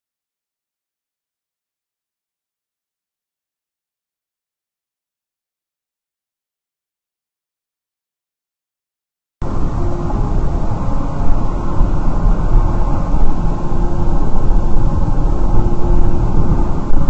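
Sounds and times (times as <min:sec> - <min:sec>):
car road and engine noise: 0:09.4 - 0:17.0
faint steady hum: 0:09.4 - 0:17.0.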